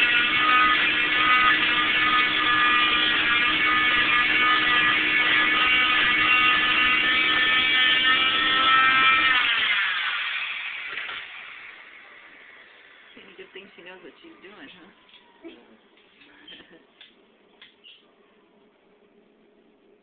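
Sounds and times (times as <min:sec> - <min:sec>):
cast saw high whine: 0:00.0 - 0:13.3.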